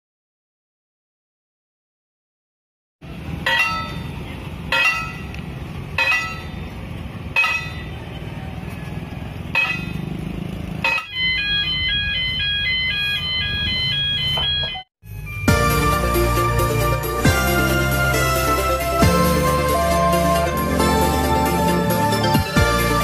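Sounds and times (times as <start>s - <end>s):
level crossing alarm tones: 10.8s - 22.9s.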